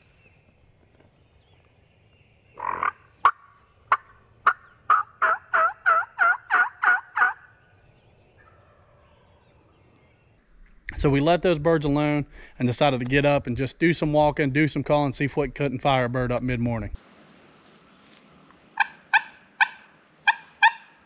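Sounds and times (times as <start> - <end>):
turkey yelps: 2.6 - 7.4, 18.8 - 21.0
turkey call: 2.6 - 7.5, 18.8 - 21.0
turkey clucks: 2.6 - 7.5, 18.8 - 21.0.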